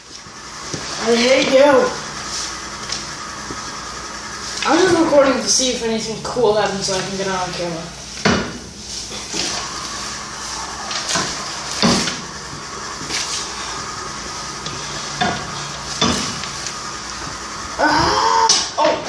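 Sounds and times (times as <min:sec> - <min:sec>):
steady hiss: 0:00.0 - 0:17.8.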